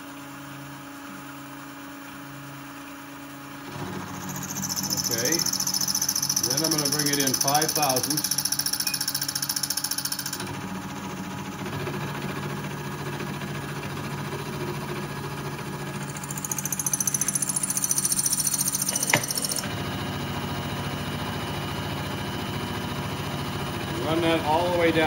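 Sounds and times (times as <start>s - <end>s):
milling machine spindle running: 3.7s - 11.3s, 14.3s - 25.0s
high-pitched metal cutting: 4.2s - 10.4s, 16.0s - 19.7s.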